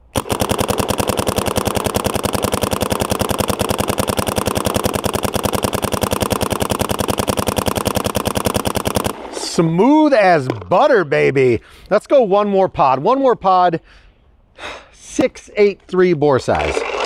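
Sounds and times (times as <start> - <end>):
paintball marker firing rapidly: 0.0 - 9.7.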